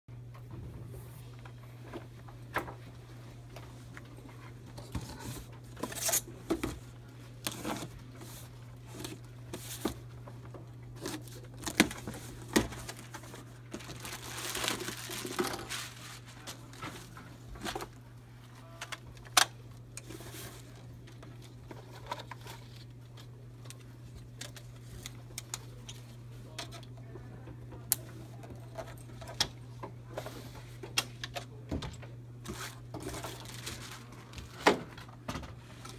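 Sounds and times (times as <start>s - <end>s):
low steady hum: 0.1s - 35.9s
packing material rustling and tearing: 10.9s - 17.8s, 32.5s - 34.6s.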